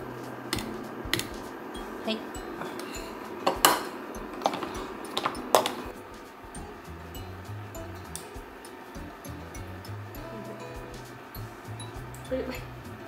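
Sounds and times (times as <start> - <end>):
fork tapping ceramic bowl: 0.6 - 1.4
utensils clinking on steel saucepan: 2.5 - 6.0.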